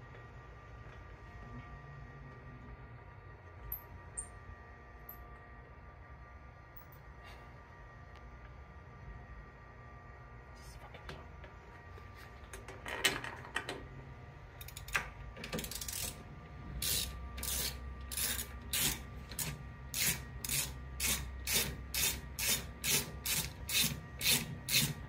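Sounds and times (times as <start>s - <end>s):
ratchet wrench rasping: 14.6s - 15.0s, 15.6s - 16.2s, 16.8s - 25.0s.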